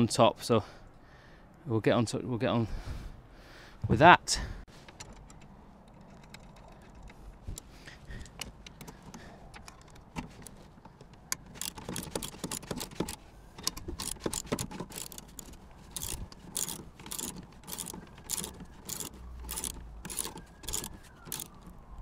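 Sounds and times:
allen key clicking and scraping: 0:04.7 - 0:22.0.

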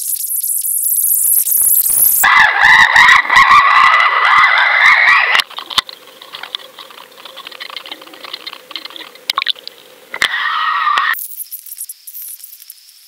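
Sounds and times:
faint water noise: 0:02.0 - 0:11.2
muffled underwater whine and rushing: 0:02.4 - 0:11.2
scattered clicks: 0:03.7 - 0:10.4.

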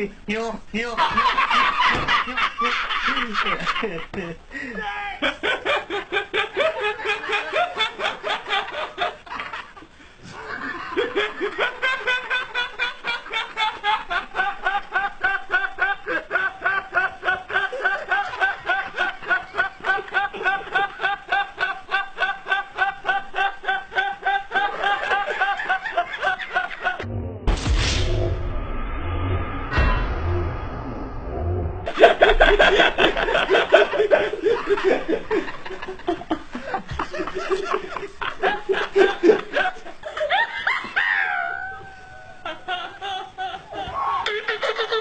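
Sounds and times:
person laughing: 0:01.0 - 0:09.1.

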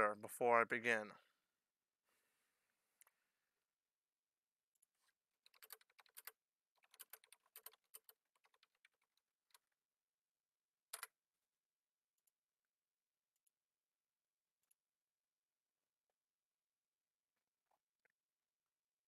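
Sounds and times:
keyboard typing: 0:05.5 - 0:09.6, 0:10.9 - 0:11.1.

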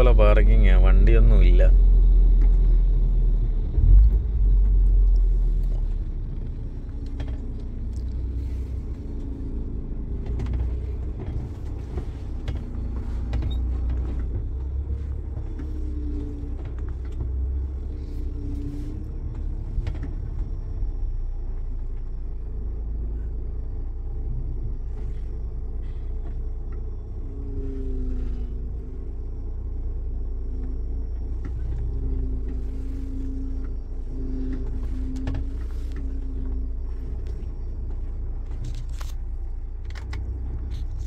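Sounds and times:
truck diesel engine rumbling: 0:00.0 - 0:41.0
light clicks and creaks: 0:04.4 - 0:20.8, 0:30.6 - 0:41.0.

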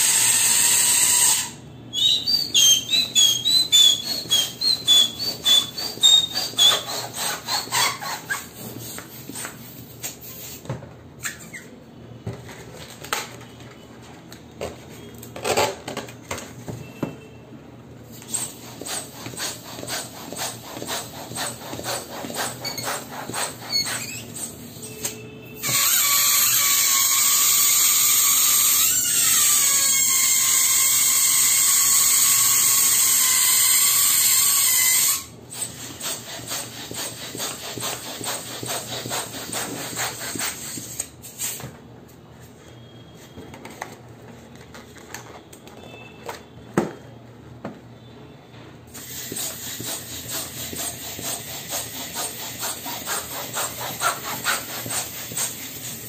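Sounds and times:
balloons rubbing and squeaking: 0:00.0 - 0:12.0, 0:18.1 - 0:41.7, 0:48.9 - 0:56.0.

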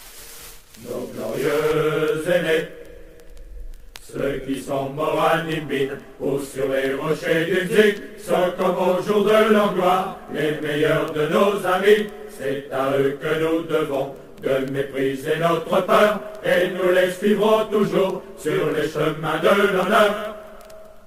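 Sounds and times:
low male chanting: 0:00.8 - 0:02.4.

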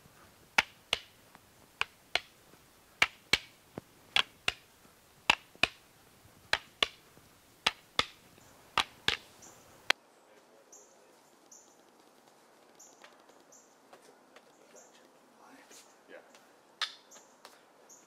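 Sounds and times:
sticks clacking together: 0:00.5 - 0:02.4, 0:03.0 - 0:05.8, 0:06.5 - 0:07.0, 0:07.6 - 0:10.0.

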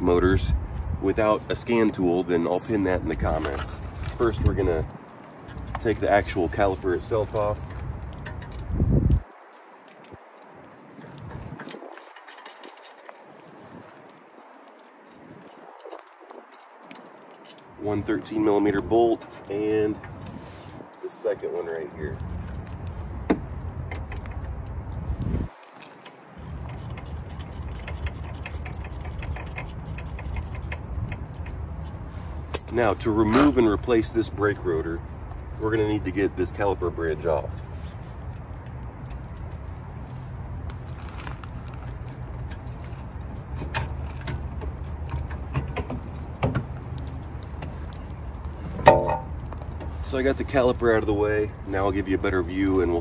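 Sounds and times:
metallic clicks and knocks: 0:26.4 - 0:31.8, 0:48.7 - 0:49.9.

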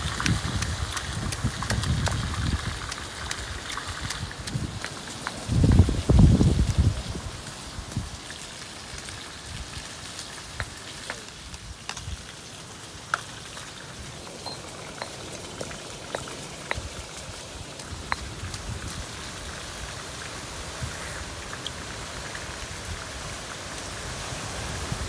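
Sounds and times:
steady hiss: 0:04.6 - 0:25.0
mortar and pestle thumps: 0:14.4 - 0:19.0.

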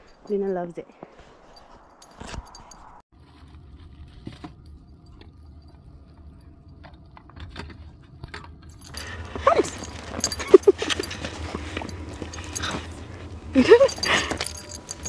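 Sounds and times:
dog collar tags clinking: 0:08.7 - 0:15.0
dog whining: 0:09.0 - 0:15.0.

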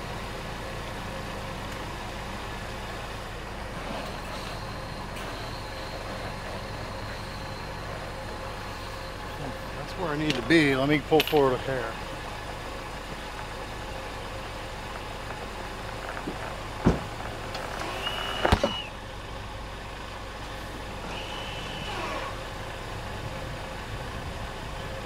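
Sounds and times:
truck engine idling: 0:00.0 - 0:25.0
brief high squeal: 0:03.9 - 0:08.0, 0:17.9 - 0:18.9, 0:21.1 - 0:22.4
sharp knocks: 0:16.8 - 0:17.1.

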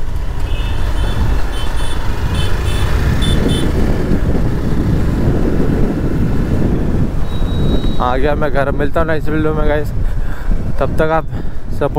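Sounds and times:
motorcycle engine running: 0:00.0 - 0:08.0
wind rushing over microphone: 0:00.0 - 0:11.9.

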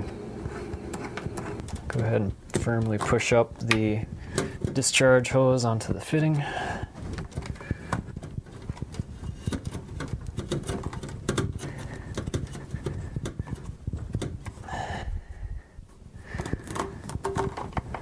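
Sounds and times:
plastic hose crackling and clicking: 0:00.8 - 0:05.0, 0:06.9 - 0:14.6, 0:16.2 - 0:18.0.

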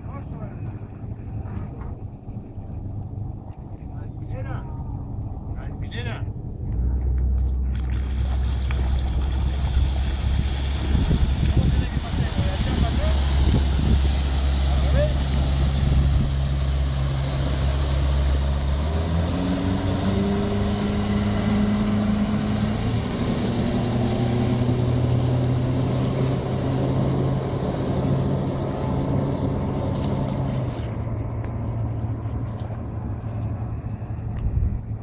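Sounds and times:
outboard motor running at speed: 0:00.0 - 0:35.0.

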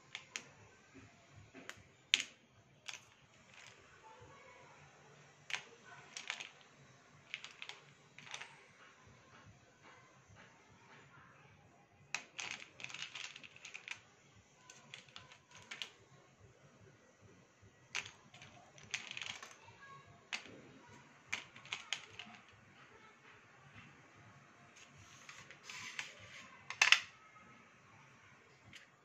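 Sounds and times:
pencil sticks clattering in plastic bowl: 0:02.1 - 0:03.8, 0:05.5 - 0:06.6, 0:07.3 - 0:08.5, 0:12.2 - 0:14.0, 0:14.7 - 0:16.0, 0:17.9 - 0:19.6, 0:20.3 - 0:20.5, 0:21.3 - 0:22.5, 0:25.1 - 0:27.1.

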